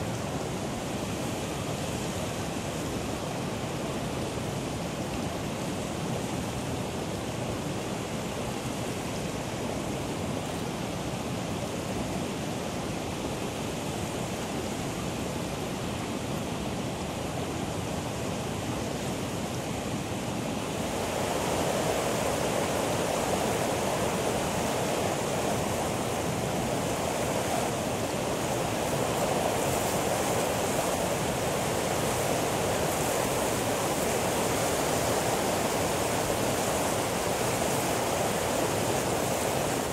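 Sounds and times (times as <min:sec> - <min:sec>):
geyser jetting steam and water: 0:17.1 - 0:39.9.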